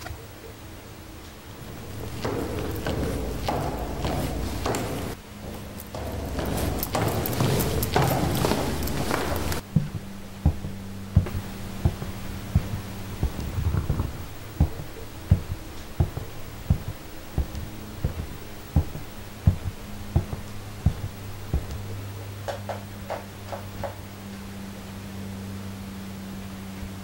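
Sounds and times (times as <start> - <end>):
steady low hum: 0.0 - 27.0
footsteps on carpet: 1.6 - 22.0.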